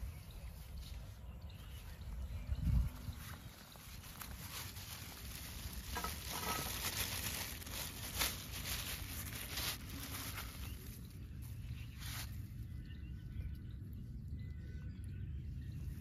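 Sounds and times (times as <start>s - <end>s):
plastic bag crinkling: 3.8s - 11.1s.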